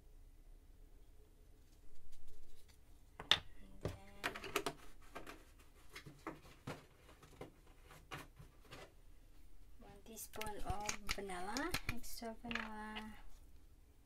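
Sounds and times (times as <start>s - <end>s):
plastic containers knocking on countertop: 10.8s - 12.8s.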